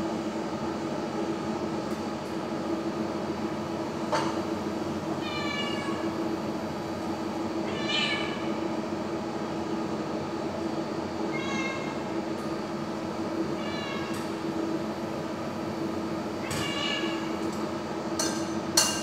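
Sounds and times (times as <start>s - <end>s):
cat meowing: 5.2s - 6.0s, 7.7s - 8.4s, 11.3s - 12.0s, 13.6s - 14.2s, 16.4s - 17.3s.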